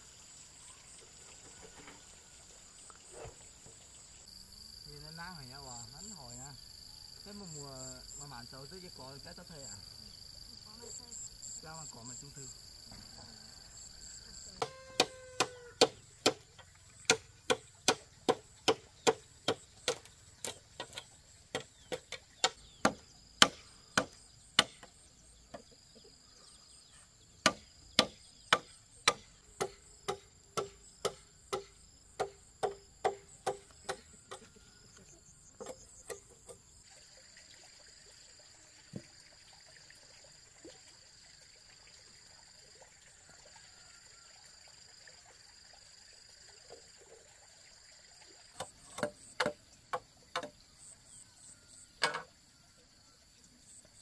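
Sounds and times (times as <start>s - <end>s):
insects buzzing: 0.0s - 54.0s
chopping on wooden pole: 14.6s - 25.7s, 27.4s - 34.5s, 48.6s - 50.6s.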